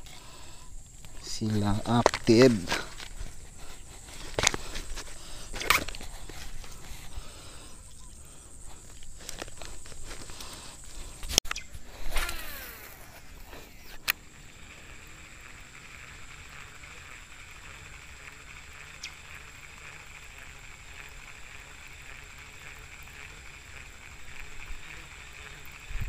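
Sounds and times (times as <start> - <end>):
fishing reel spool whirring: 0.0 - 26.0
high-pitched buzz: 0.0 - 26.0
sharp click: 11.2 - 12.9.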